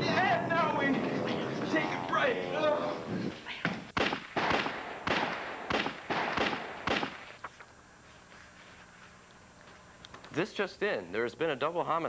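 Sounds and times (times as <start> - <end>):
sharp gunshots: 4.0 - 7.4.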